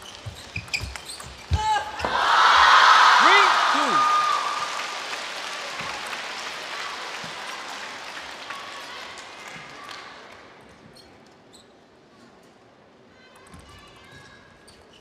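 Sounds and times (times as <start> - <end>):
crowd applause and cheering: 1.9 - 10.4.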